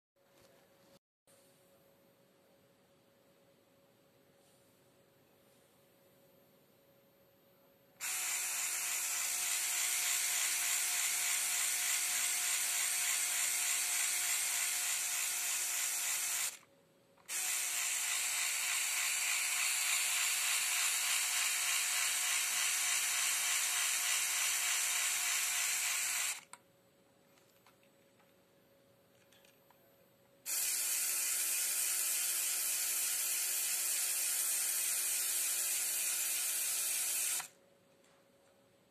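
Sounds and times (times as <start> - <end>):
motor whirring with gear chatter: 8.0 - 16.6, 17.2 - 26.6, 30.5 - 37.5.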